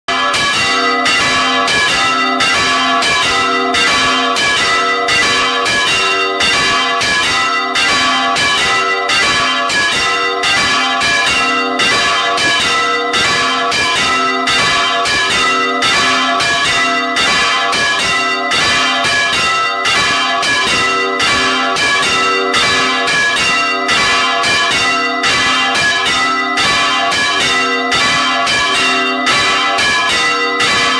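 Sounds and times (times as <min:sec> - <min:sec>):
large church bells ringing: 0:00.1 - 0:30.9.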